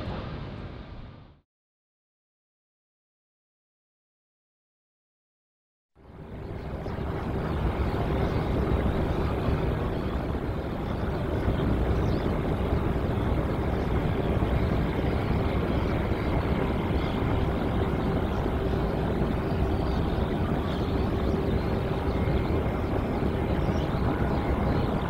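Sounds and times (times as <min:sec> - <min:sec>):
jet engine roar with whine: 0:06.0 - 0:25.0.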